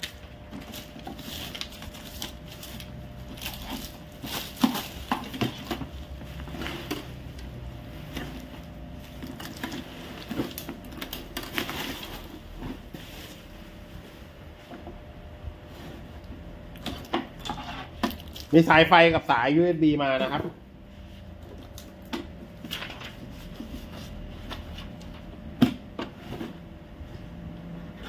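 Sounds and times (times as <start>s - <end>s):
bubble wrap crinkling: 0.0s - 14.0s.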